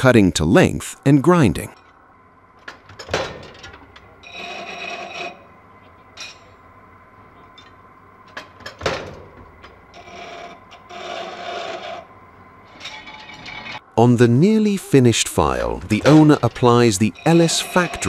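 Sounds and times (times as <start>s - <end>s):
file grinding on grinding wheel: 4.2s - 5.6s, 9.9s - 12.1s, 17.1s - 18.0s.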